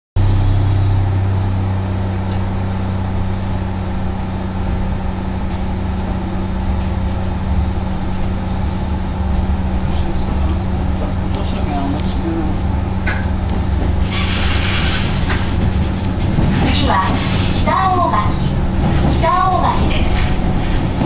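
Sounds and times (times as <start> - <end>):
electric train hum and rumble: 0.2 - 21.0.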